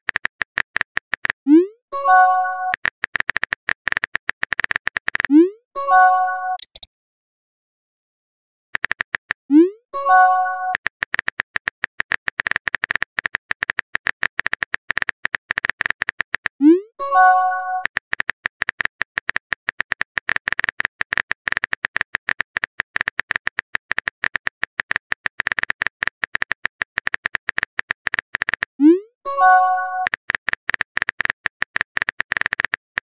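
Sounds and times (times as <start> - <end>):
phone keyboard typing clicks: 0.1 - 1.4, 2.1 - 5.3, 6.5 - 6.9, 8.8 - 9.5, 10.1 - 16.6, 17.2 - 28.8, 29.4 - 33.0.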